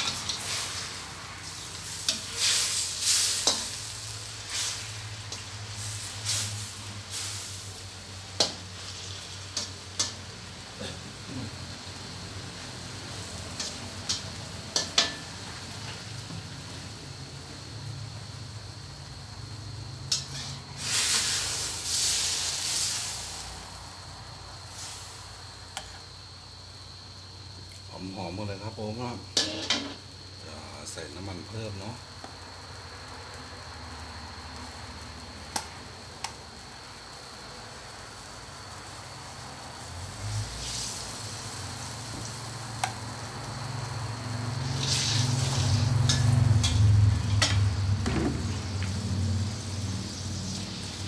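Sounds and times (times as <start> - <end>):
spatula scraping a wok: 0.0 - 7.8, 20.1 - 23.3, 25.7 - 26.1, 29.3 - 30.0, 44.5 - 47.7
vegetables sizzling in oil: 0.0 - 51.0
wok hissing with steam: 0.0 - 51.0
metal spatula clank: 29.4 - 30.0.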